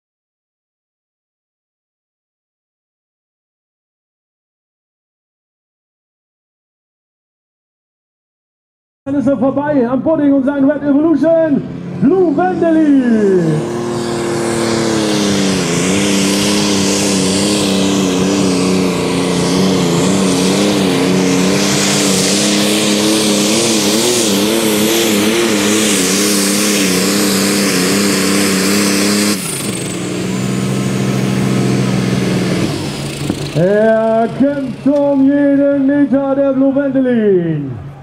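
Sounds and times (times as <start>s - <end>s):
diesel engine at full throttle: 9.1s - 38.0s.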